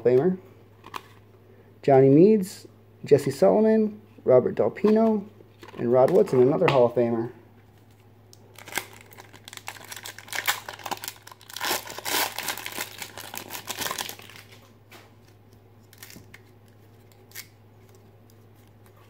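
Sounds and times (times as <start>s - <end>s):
wrapper tearing and crinkling: 8.5s - 14.7s, 15.8s - 16.5s.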